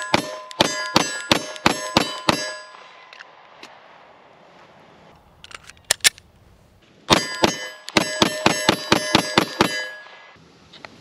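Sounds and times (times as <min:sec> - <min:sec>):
pistol shots: 0:00.0 - 0:02.8
steel targets ringing: 0:00.0 - 0:03.0, 0:07.1 - 0:10.4.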